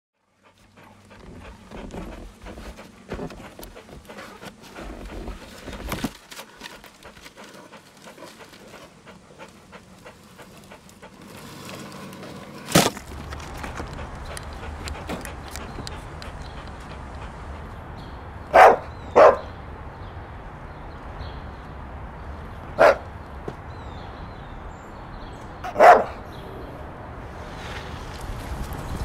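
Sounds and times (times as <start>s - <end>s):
dog panting: 0.2s - 21.6s
steady low rumble: 13.0s - 25.2s.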